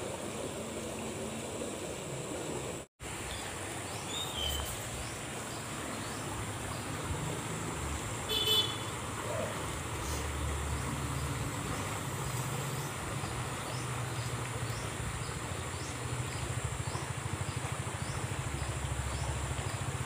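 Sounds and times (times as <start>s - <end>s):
low traffic hum: 0.0s - 20.0s
insect chirping: 0.4s - 11.6s.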